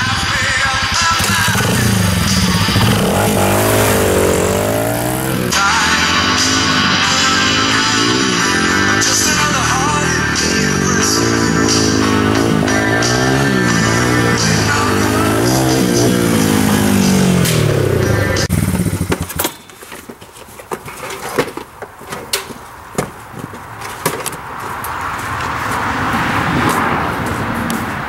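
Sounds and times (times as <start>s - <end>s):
music: 0.0s - 18.5s
vehicle engine: 0.0s - 19.6s
cages and gear clunking: 18.9s - 25.5s.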